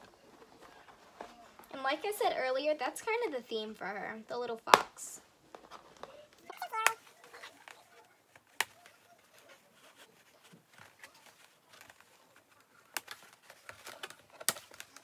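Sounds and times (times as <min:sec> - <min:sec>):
faint handling rustle: 0:00.0 - 0:02.2, 0:05.4 - 0:15.0.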